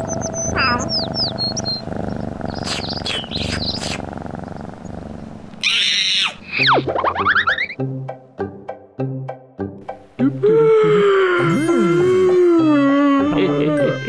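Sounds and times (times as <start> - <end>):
high falling bird chirps: 0.0 - 4.9
light background music: 6.5 - 14.0.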